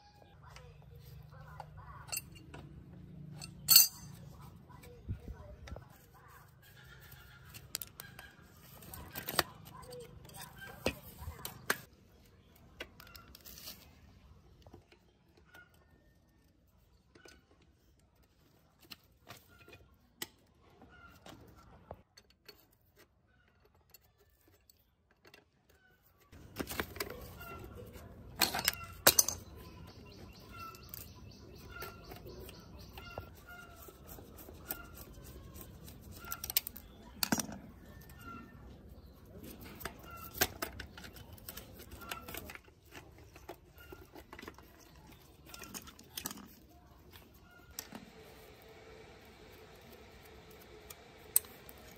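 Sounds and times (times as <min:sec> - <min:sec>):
wrench clanking on bicycle parts: 0:01.9 - 0:04.4, 0:26.4 - 0:38.4
small bird chirping: 0:27.1 - 0:47.8.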